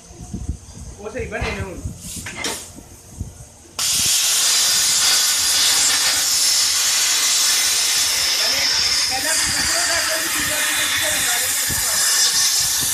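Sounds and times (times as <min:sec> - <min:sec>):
plasma torch hissing: 0:03.8 - 0:12.9.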